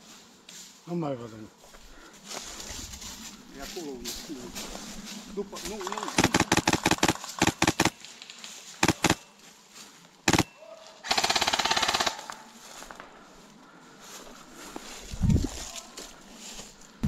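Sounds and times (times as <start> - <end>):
airsoft rifle firing: 6.0 - 8.0, 8.8 - 9.2, 10.3 - 10.5, 11.1 - 12.3.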